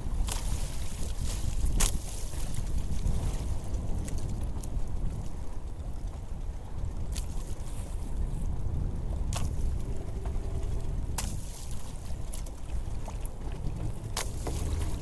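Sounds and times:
water lapping at boat hull: 0:00.0 - 0:15.0
wind buffeting microphone: 0:00.0 - 0:15.0
water slapping: 0:09.2 - 0:15.0.

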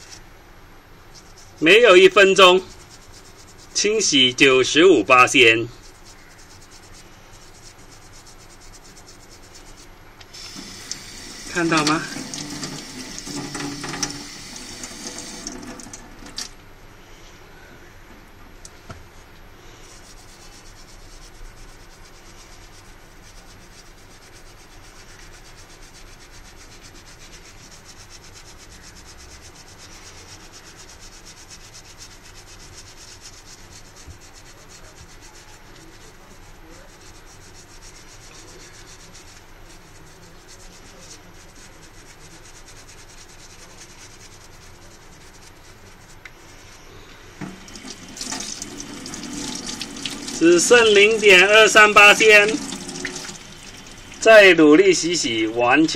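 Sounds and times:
toothbrush scrubbing skin: 0:01.1 - 0:16.5, 0:19.7 - 0:55.3
tap water running: 0:10.2 - 0:16.6, 0:47.3 - 0:54.4.

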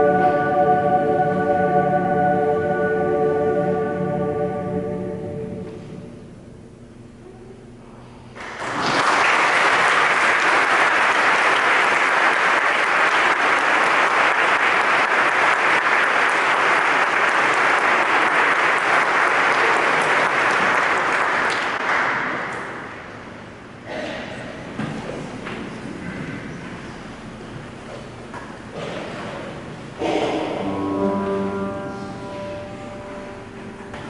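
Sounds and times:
audience applauding: 0:08.4 - 0:23.2.

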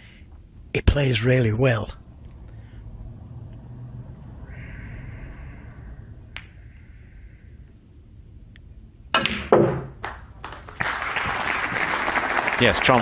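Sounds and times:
audience applause: 0:10.0 - 0:13.0.

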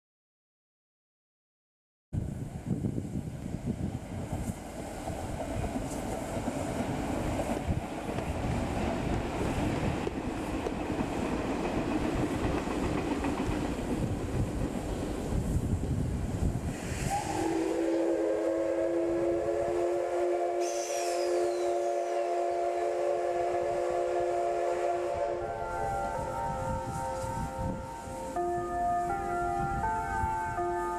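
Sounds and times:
steam locomotive whistle: 0:16.7 - 0:30.9.

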